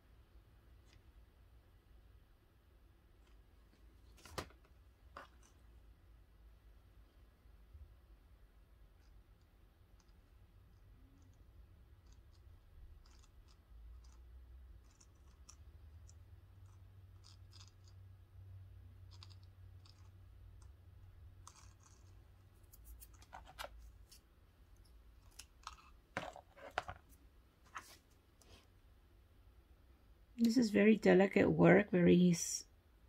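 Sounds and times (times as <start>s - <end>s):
small clicks and scratches: 0.8s - 1.2s, 3.1s - 5.8s, 8.8s - 18.2s, 18.9s - 28.8s.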